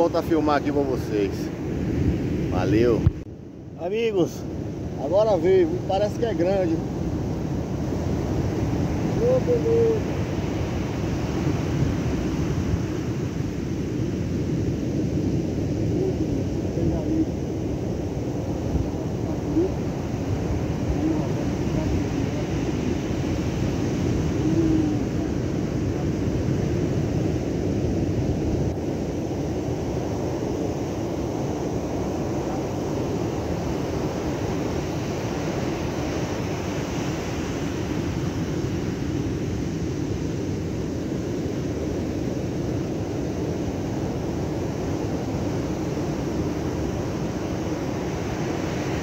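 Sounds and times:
ocean surf breaking: 0.0 - 49.0
wind: 0.0 - 49.0.

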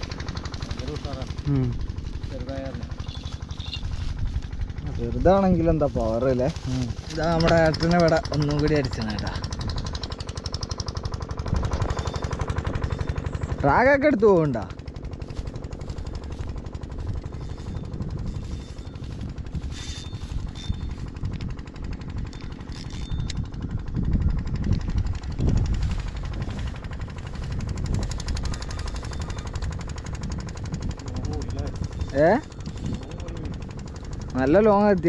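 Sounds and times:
wind rumble on microphone: 0.0 - 13.5, 15.0 - 35.0
fishing reel clicking: 16.1 - 34.2.

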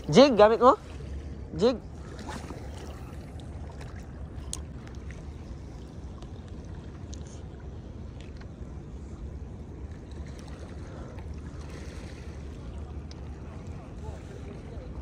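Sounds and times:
water noise: 0.0 - 15.0.

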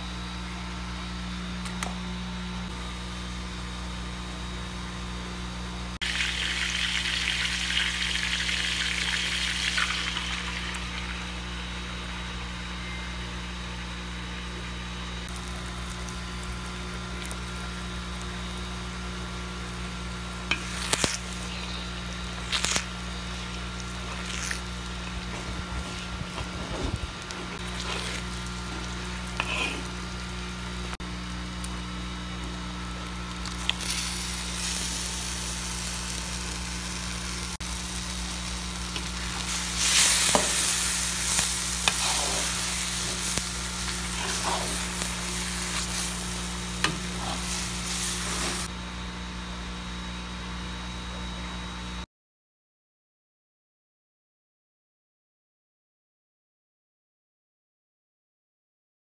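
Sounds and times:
steady low hum: 0.0 - 52.0
eggs sizzling in hot oil: 6.0 - 11.6, 19.7 - 48.7
spatula scraping a pan: 29.3 - 29.9, 39.0 - 48.7.

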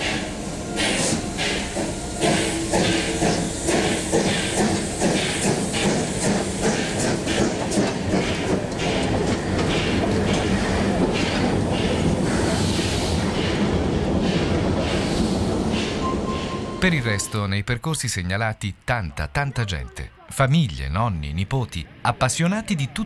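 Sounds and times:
rail rumble: 0.0 - 17.3
steam locomotive beats: 0.0 - 17.5.

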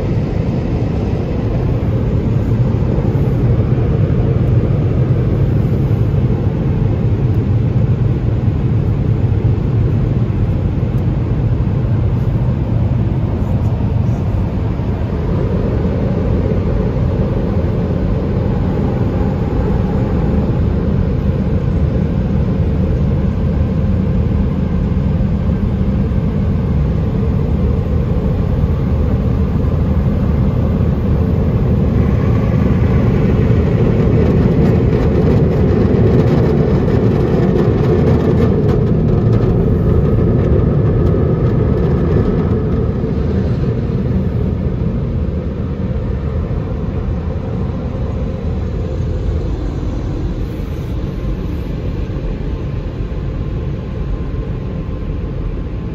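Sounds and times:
car wash dryer blowers: 0.0 - 55.9.

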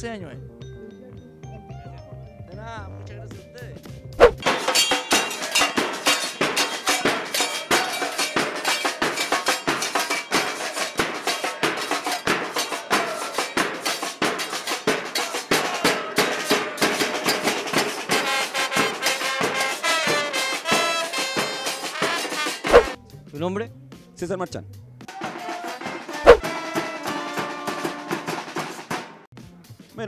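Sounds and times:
snare drums: 3.8 - 23.0, 25.1 - 29.3.

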